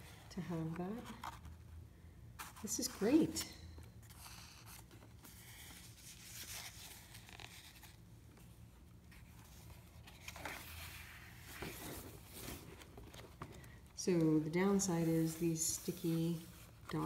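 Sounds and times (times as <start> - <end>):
paper pages rustling: 3.9 - 17.0.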